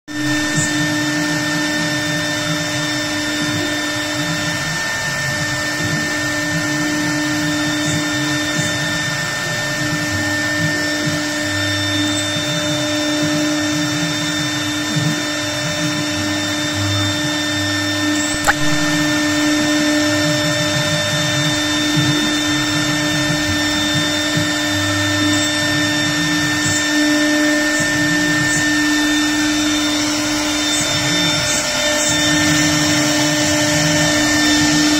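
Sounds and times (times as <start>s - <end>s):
router spindle whine: 0.1s - 34.9s
brief click: 18.3s - 19.1s.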